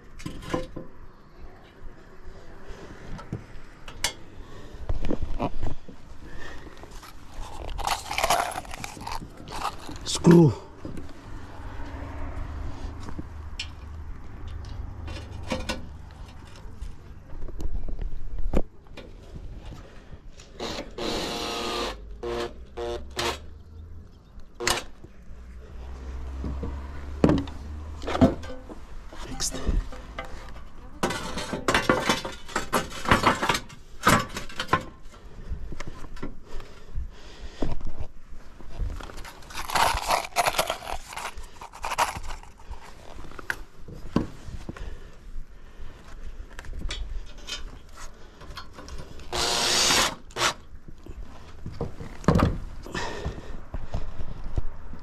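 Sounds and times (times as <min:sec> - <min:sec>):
roof tiles clicking and knocking: 0:07.4 - 0:10.2, 0:31.0 - 0:35.0, 0:39.0 - 0:44.2
cordless drill driving a screw: 0:20.6 - 0:23.4, 0:49.3 - 0:50.6.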